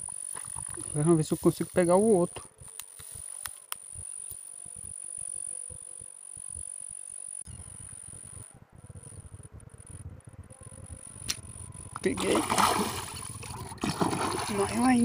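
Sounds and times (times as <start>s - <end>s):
high-pitched insect trill: 0.0s - 15.0s
low microphone rumble: 7.5s - 15.0s.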